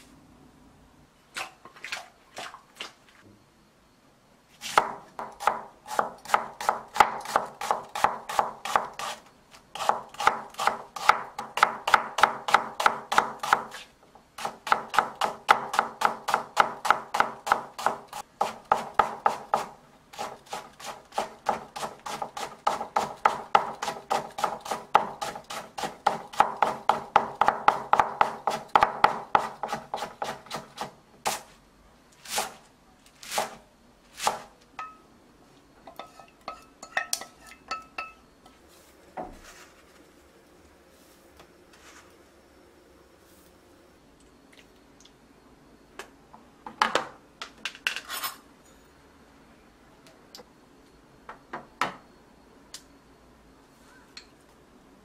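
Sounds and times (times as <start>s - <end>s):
knife chopping on cutting board: 4.6s - 9.2s, 9.8s - 31.4s.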